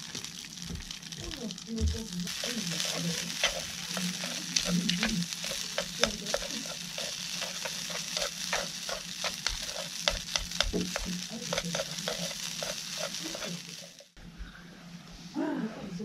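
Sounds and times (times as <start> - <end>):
rice sizzling in a frying pan: 0.0 - 14.2
chopsticks scraping a pan: 2.3 - 14.2.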